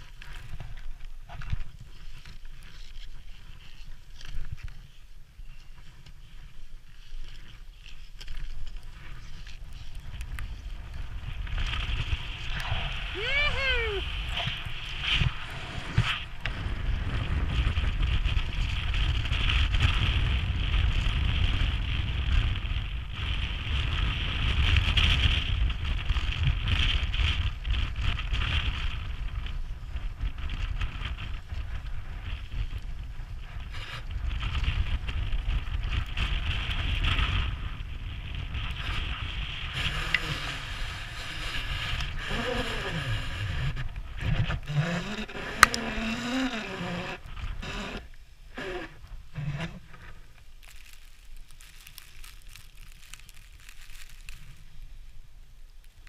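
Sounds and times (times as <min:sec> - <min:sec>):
wind buffeting microphone: 0:05.5 - 0:55.2.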